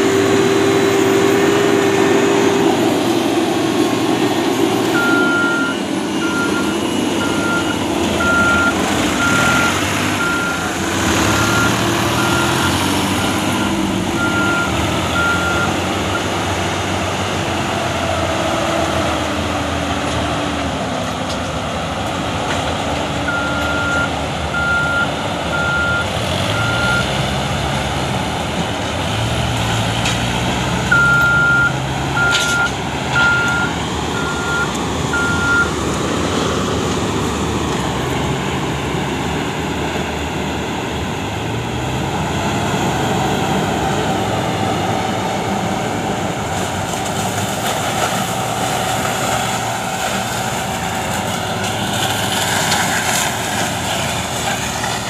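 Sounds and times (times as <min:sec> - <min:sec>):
diesel engines under load: 0:00.0 - 0:55.0
reversing alarm beeping: 0:04.9 - 0:16.3, 0:23.3 - 0:27.1, 0:30.9 - 0:35.7.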